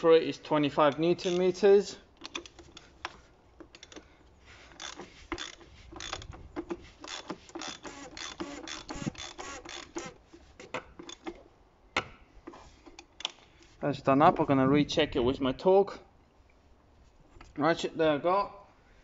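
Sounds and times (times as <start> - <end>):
socket ratchet clicking: 0.9 - 1.6, 4.7 - 10.2.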